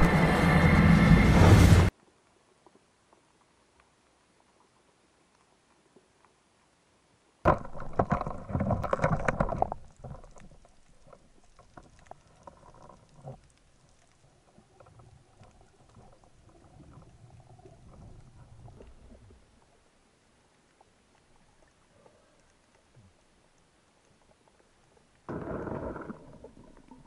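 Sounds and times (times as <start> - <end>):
low rumbling water noise: 0.0 - 27.0
water splashing and bubbling: 7.5 - 27.0.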